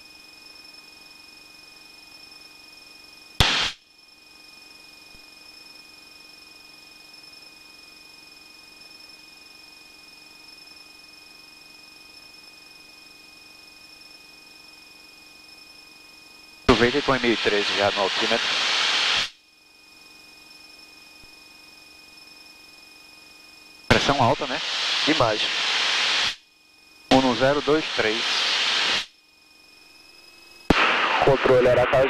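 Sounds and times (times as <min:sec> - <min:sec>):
burst of static: 0:03.4 - 0:03.8, 0:16.7 - 0:19.4, 0:23.9 - 0:26.4, 0:27.1 - 0:29.1, 0:30.7 - 0:32.0
high electronic whine: 0:16.4 - 0:32.0
radio intercom hiss: 0:16.7 - 0:19.3, 0:23.9 - 0:26.4, 0:27.1 - 0:29.0, 0:30.7 - 0:32.0.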